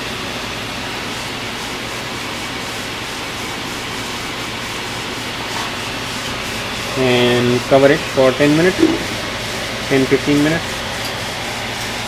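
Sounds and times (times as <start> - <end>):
gas burner hissing: 6.9 - 11.4.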